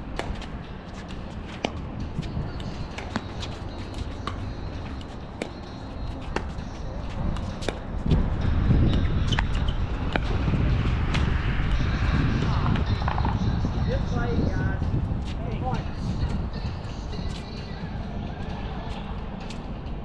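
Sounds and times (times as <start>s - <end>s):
low rumble: 8.0s - 16.8s.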